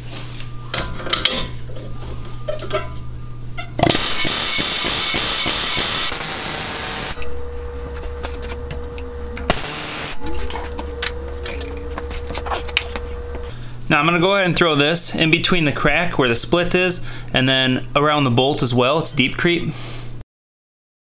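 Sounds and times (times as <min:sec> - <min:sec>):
tools clinking: 0:07.2 - 0:13.5.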